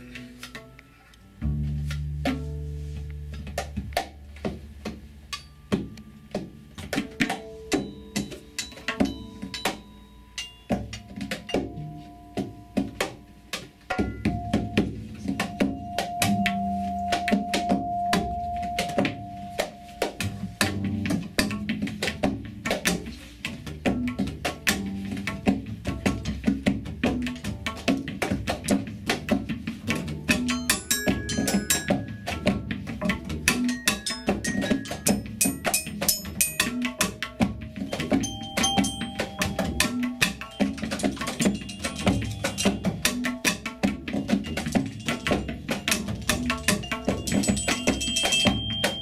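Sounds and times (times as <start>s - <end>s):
double bass low notes: 0.0s - 8.0s, 14.1s - 33.7s
low bass notes: 1.2s - 7.0s
percussion knocks and strikes: 1.4s - 49.0s
vibraphone ringing tones: 5.3s - 21.0s, 30.1s - 49.0s.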